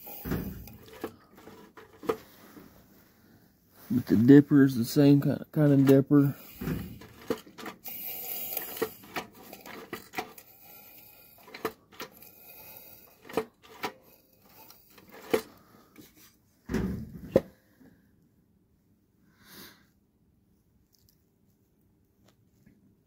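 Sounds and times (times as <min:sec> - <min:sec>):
metal parts clattering: 0:05.7 - 0:15.6.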